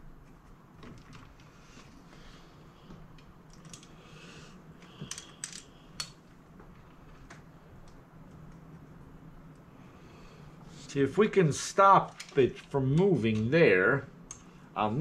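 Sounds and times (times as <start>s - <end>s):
metallic clicks of small tools: 4.9s - 6.2s.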